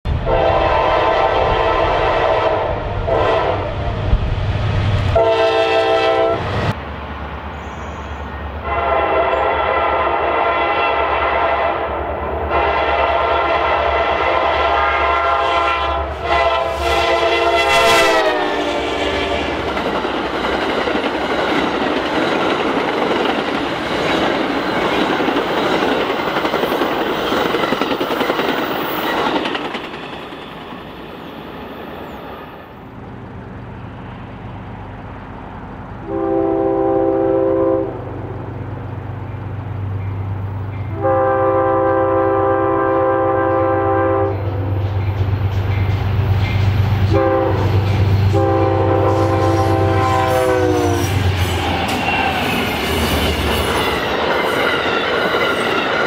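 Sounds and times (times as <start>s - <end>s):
locomotive horn blasts: 0.2s - 3.9s, 5.2s - 6.5s, 8.6s - 19.5s, 36.0s - 38.1s, 40.9s - 44.6s, 47.1s - 51.2s
train wheels clattering on rails: 16.3s - 32.4s, 44.4s - 56.0s.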